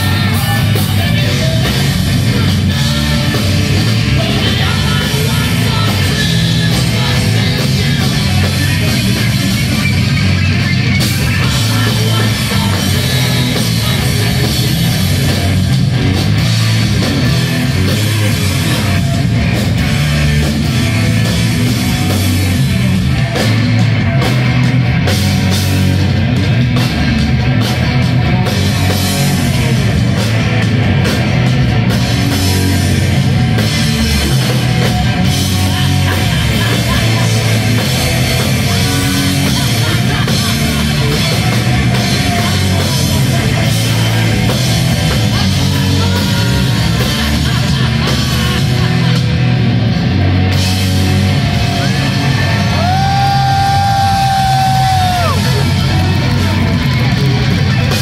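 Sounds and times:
person singing: 0.0s - 9.9s, 11.0s - 15.6s, 33.6s - 49.7s, 51.4s - 58.0s
distorted electric guitar: 0.0s - 58.0s
drum kit: 0.0s - 58.0s.

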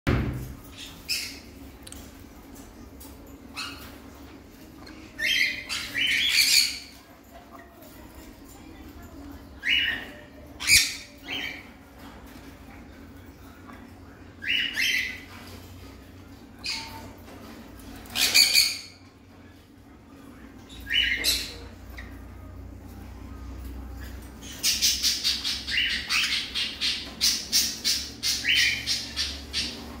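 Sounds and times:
parrots squawking: 3.5s - 7.0s, 9.6s - 12.2s, 14.4s - 15.6s, 17.8s - 19.1s, 20.7s - 22.3s, 24.0s - 30.0s.

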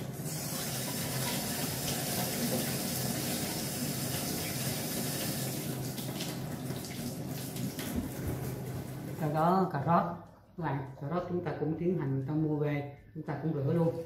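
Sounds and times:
tap water splashing into sink: 0.0s - 9.2s.

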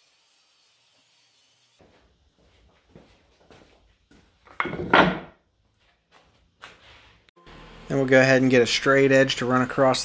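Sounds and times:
wood knocking and rubbing: 4.5s - 5.3s
wood clattering on wood: 4.5s - 5.4s.

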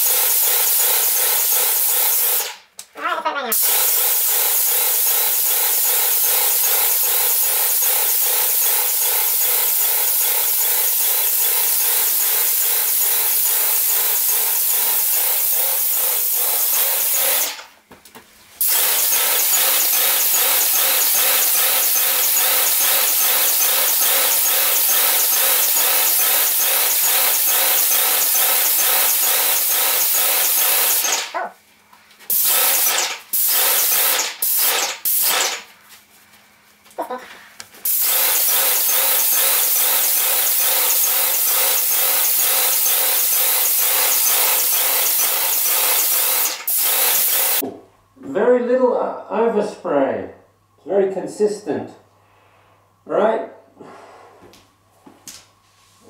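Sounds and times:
paint spray hiss: 0.0s - 2.6s, 3.6s - 17.7s, 18.6s - 31.3s, 32.3s - 35.7s, 37.8s - 47.6s
paint sprayer drone: 0.0s - 2.6s, 3.5s - 17.7s, 18.6s - 31.4s, 32.3s - 35.7s, 37.8s - 47.6s.

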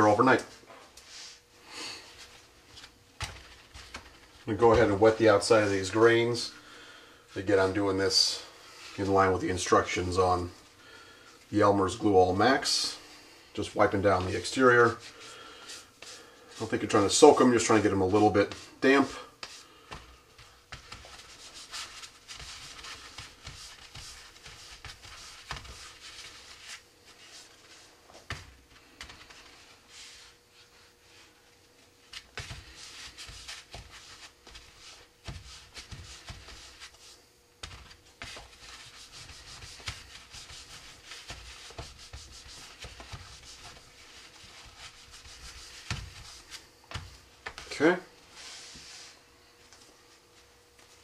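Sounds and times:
towel rubbing: 13.9s - 49.2s.

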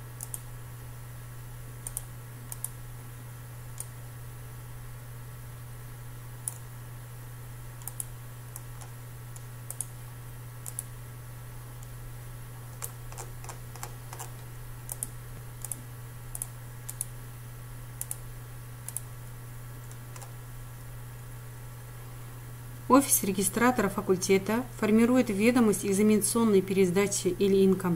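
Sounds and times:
low electrical hum: 0.0s - 27.9s
mouse and keyboard clicks: 12.8s - 15.8s.

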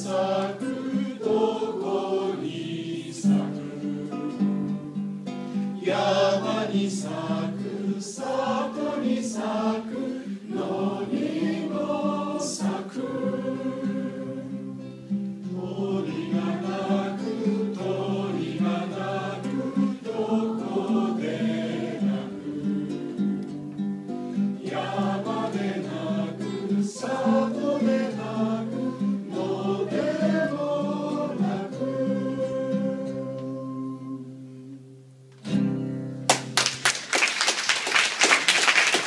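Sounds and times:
people singing in unison: 0.0s - 23.4s, 24.4s - 34.8s
strummed acoustic guitar: 3.2s - 7.8s, 12.8s - 33.4s, 34.9s - 36.6s.

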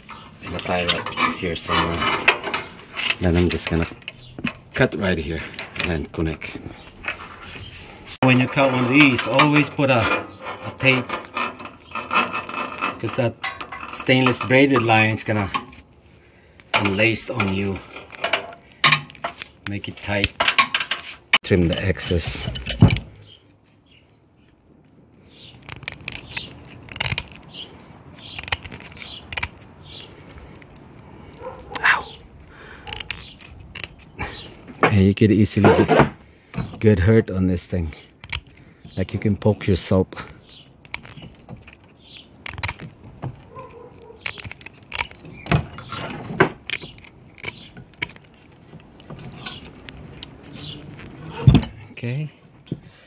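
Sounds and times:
small metal clinking: 20.2s - 23.4s
metal snips cutting braided hose: 25.5s - 27.4s, 37.6s - 51.8s.

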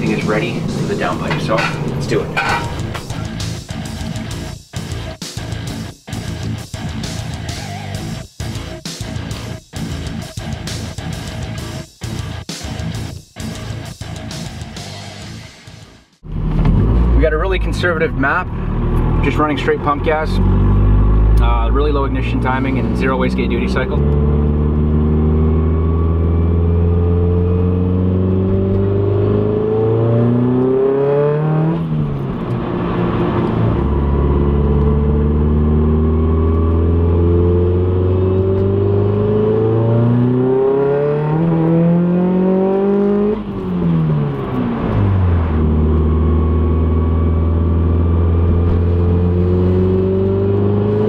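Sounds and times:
car engine revving through gears: 0.0s - 3.8s, 16.2s - 51.0s.

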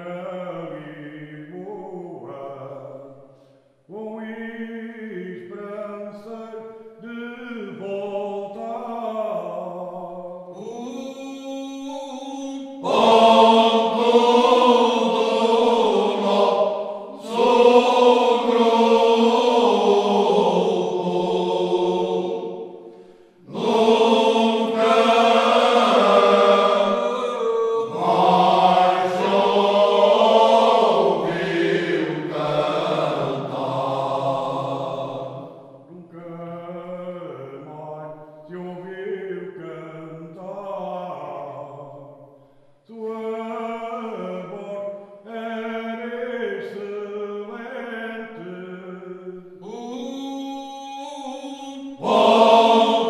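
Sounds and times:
lead voice singing: 3.9s - 41.9s, 42.9s - 53.0s
men's choir singing unaccompanied: 10.6s - 37.9s, 49.6s - 53.0s.

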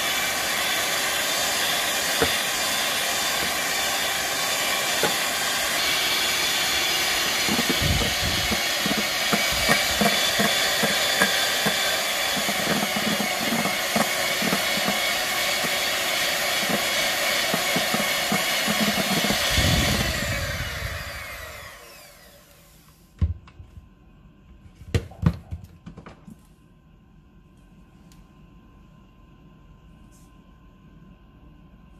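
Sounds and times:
electric hand mixer whine: 0.0s - 22.9s
beaters scraping against bowl: 7.3s - 15.0s, 17.4s - 19.4s.

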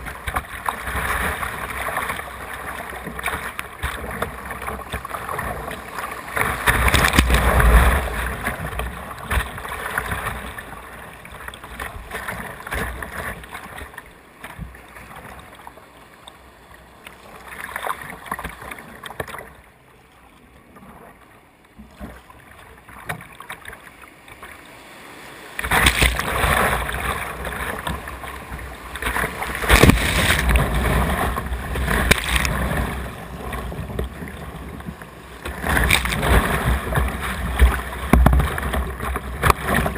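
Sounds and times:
water splashing on kayak: 0.0s - 39.9s
whitewater rushing: 24.6s - 39.9s.

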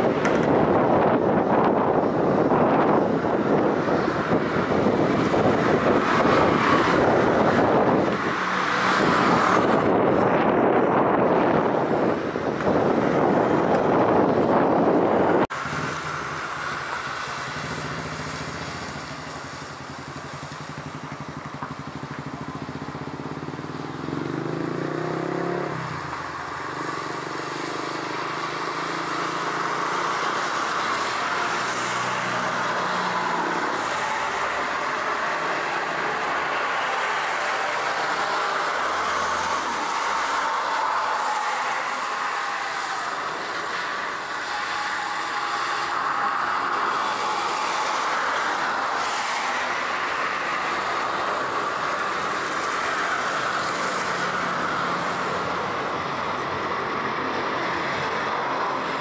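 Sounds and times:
loud rush: 24.0s - 59.0s
jet engine whining roar: 28.8s - 59.0s.

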